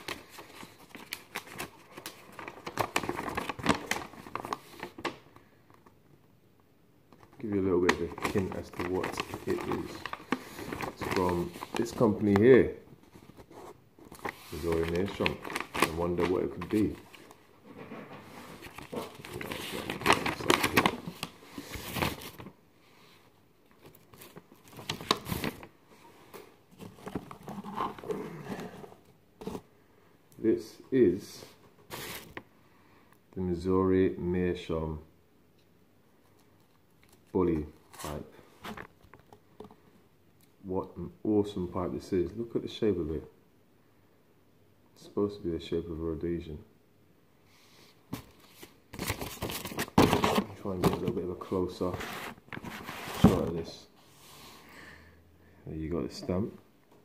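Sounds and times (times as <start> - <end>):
paper rustling and crinkling: 0.0 - 5.2, 7.2 - 22.6, 23.8 - 25.7, 26.7 - 29.6, 31.9 - 32.4, 48.1 - 53.8.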